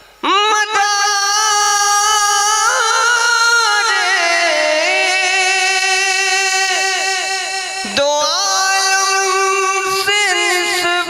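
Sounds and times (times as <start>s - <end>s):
man singing unaccompanied: 0.2s - 11.0s.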